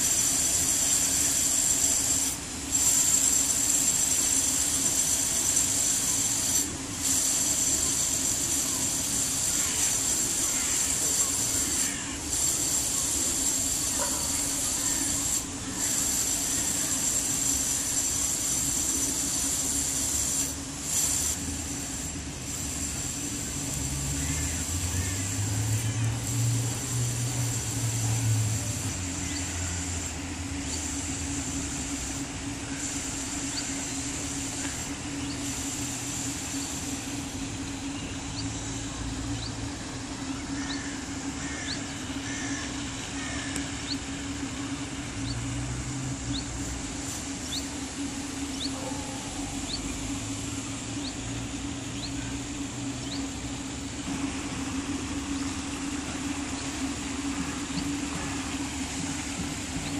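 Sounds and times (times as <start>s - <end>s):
distant traffic hum: 0.0s - 59.9s
bird chirping: 46.3s - 46.5s, 47.4s - 47.7s, 48.5s - 48.8s, 51.0s - 52.2s, 53.0s - 53.4s.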